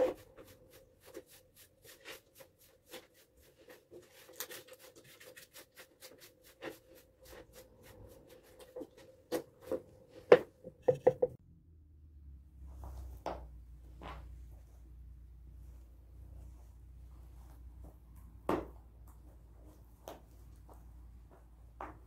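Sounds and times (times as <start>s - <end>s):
brush strokes on rough wood: 0.0s - 9.2s
knocks on wood: 10.8s - 11.4s.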